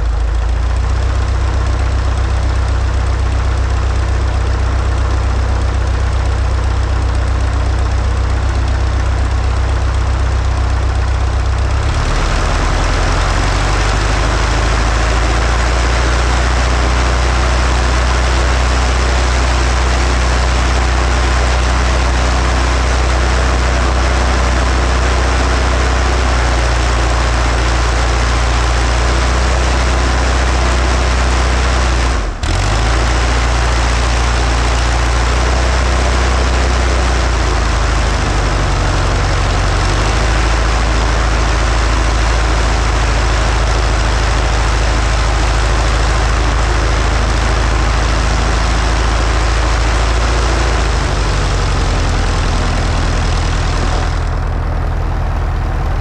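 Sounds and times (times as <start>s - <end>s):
propeller engine droning: 0.0s - 56.0s
rushing noise: 11.8s - 56.0s.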